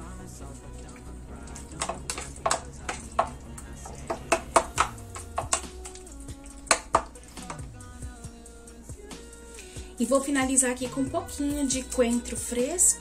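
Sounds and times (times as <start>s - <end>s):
background music: 0.0s - 13.0s
spoon stirring meat sauce: 0.9s - 7.7s.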